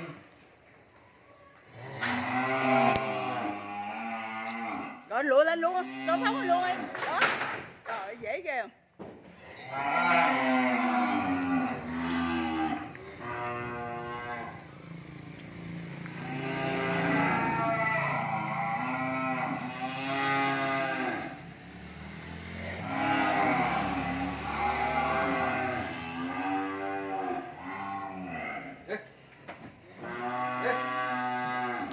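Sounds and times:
cattle mooing: 1.7 - 5.0, 5.6 - 7.0, 9.5 - 14.7, 16.2 - 21.4, 22.6 - 29.1, 29.9 - 31.9.

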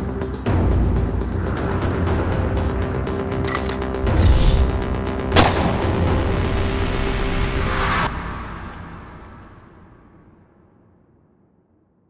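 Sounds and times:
low rumble: 3.5 - 10.2.

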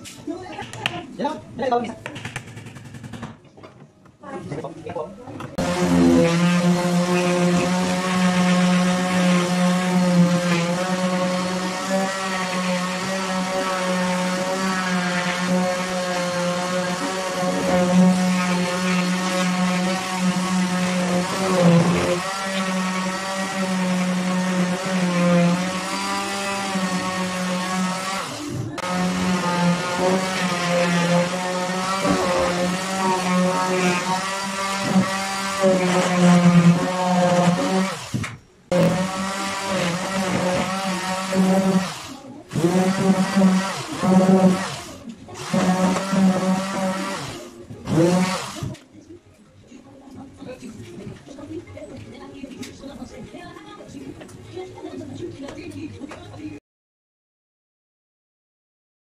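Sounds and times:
electric sander running: 5.6 - 48.7.

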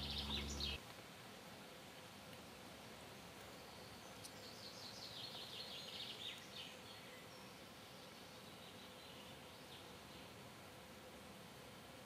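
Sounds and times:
songbird singing: 0.0 - 0.8, 2.4 - 10.4
steady outdoor hiss: 0.0 - 12.0.

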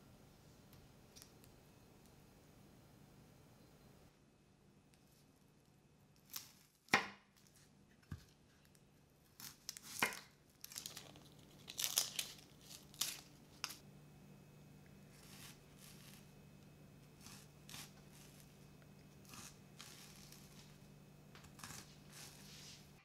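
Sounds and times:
onion skin crackling: 6.1 - 7.6, 8.4 - 13.8, 15.0 - 23.0.

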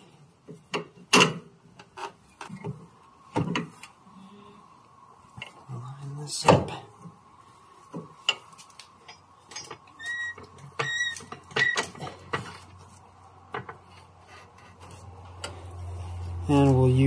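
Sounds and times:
short squeaks: 9.9 - 12.0.

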